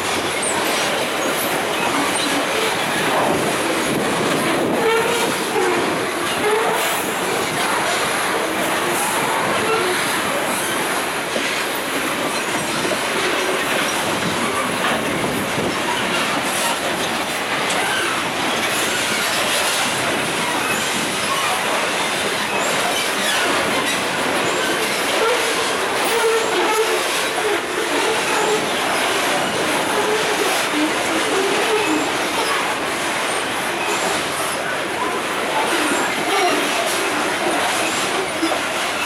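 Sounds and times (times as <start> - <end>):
train wagons rumbling on rails: 0.0 - 39.0
wheel squeal: 0.3 - 7.7, 17.7 - 39.0.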